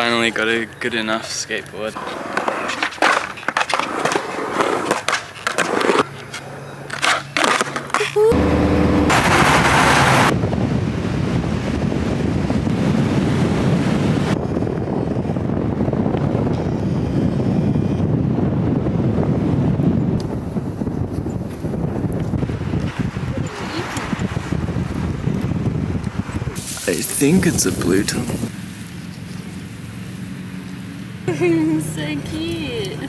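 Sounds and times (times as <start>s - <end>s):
skateboard rolling on concrete: 0.0s - 10.4s, 11.8s - 33.0s
skateboard wheels knocking: 2.0s - 8.2s
wind buffeting microphone: 8.3s - 33.0s.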